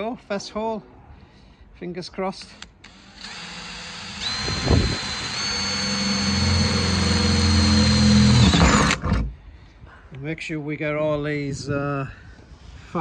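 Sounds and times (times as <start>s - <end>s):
cordless drill boring sheet metal: 2.4s - 9.2s.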